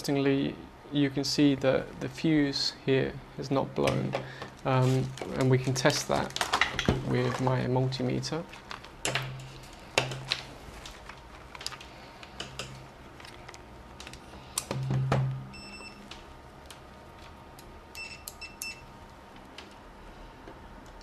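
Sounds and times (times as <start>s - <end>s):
multimeter beeping: 14.8s - 16.1s, 17.9s - 18.9s.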